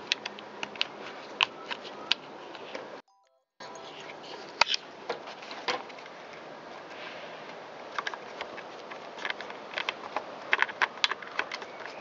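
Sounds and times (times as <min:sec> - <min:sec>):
plastic cover clicking and scraping: 0:07.9 - 0:12.0.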